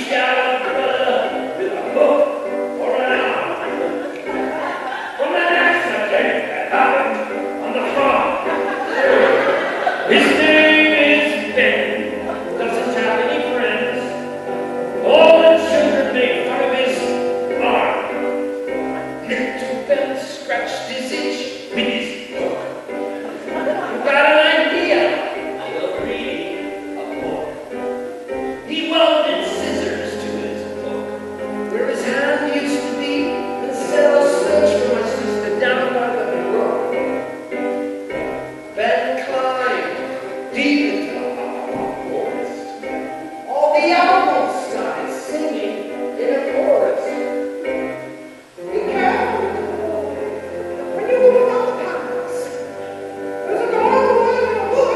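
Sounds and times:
acoustic guitar: 0:00.0 - 0:54.9
man singing: 0:08.9 - 0:14.3.

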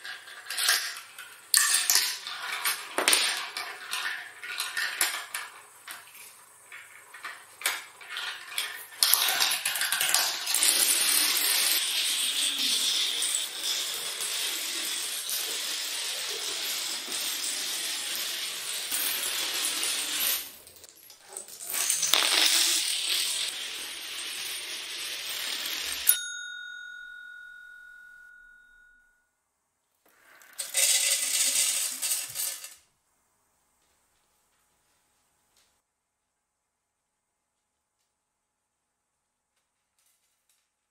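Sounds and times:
dominoes toppling clatter: 0:00.0 - 0:26.1, 0:30.2 - 0:32.8
ringing tone: 0:26.1 - 0:29.3.

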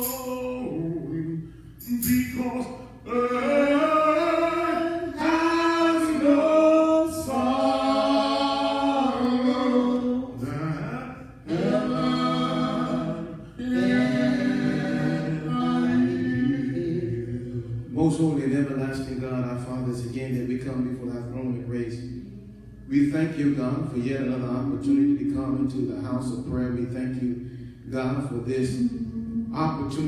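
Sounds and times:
a cappella group singing: 0:00.0 - 0:18.4, 0:28.3 - 0:30.0.

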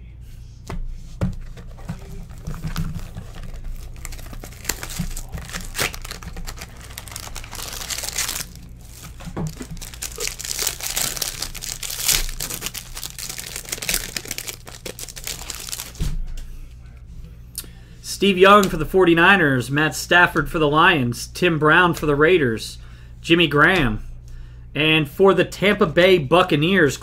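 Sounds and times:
cards being handled: 0:01.2 - 0:16.0
plastic wrapper crinkling and tearing: 0:01.4 - 0:16.1.

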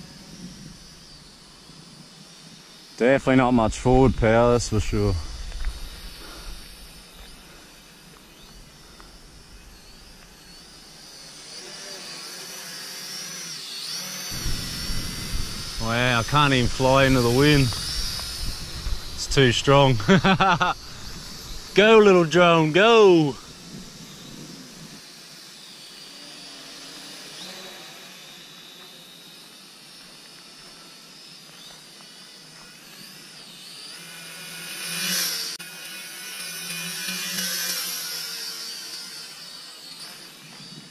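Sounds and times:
wind hiss: 0:00.0 - 0:11.6, 0:14.2 - 0:25.1
toy drone propellers buzzing: 0:00.0 - 0:40.9.

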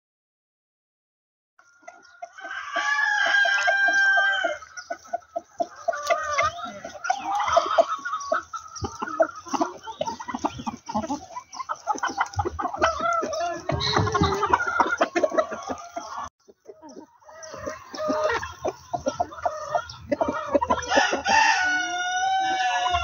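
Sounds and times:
chickens clucking: 0:01.6 - 0:23.0
rooster crowing: 0:02.3 - 0:04.6, 0:20.8 - 0:23.0.

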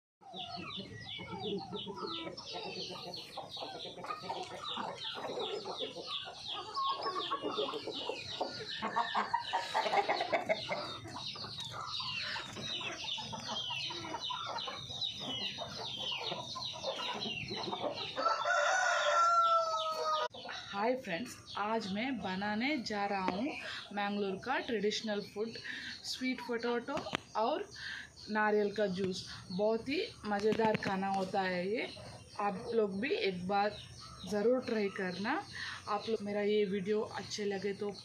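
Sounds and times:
chickens clucking: 0:00.2 - 0:38.0
rooster crowing: 0:18.2 - 0:20.3.

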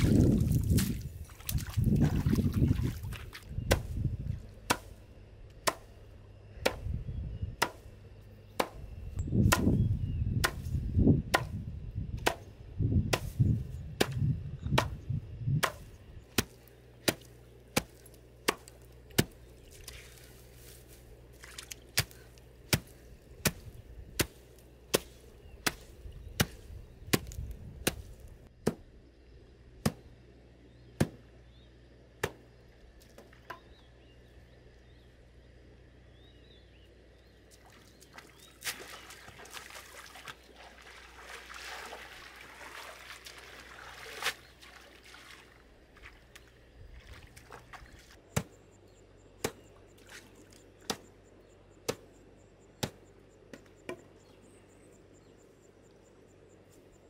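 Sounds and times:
blade chopping plants on rocks: 0:00.0 - 0:02.5, 0:03.1 - 0:06.0, 0:07.6 - 0:07.9, 0:08.6 - 0:09.8, 0:10.4 - 0:11.6, 0:12.2 - 0:28.8, 0:29.8 - 0:30.1, 0:31.0 - 0:31.2, 0:32.2 - 0:33.7, 0:47.4 - 0:48.6, 0:49.4 - 0:51.1, 0:51.9 - 0:52.2, 0:52.8 - 0:54.1.

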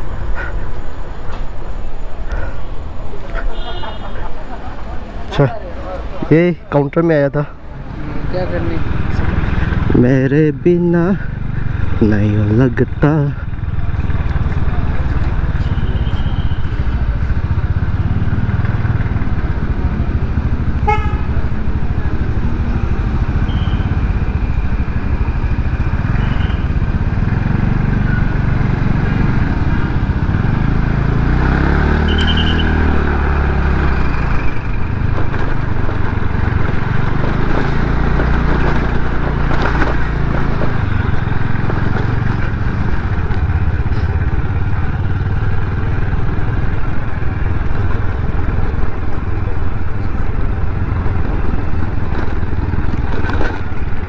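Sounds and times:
horn toots: 0:20.8 - 0:21.4, 0:32.0 - 0:32.8.

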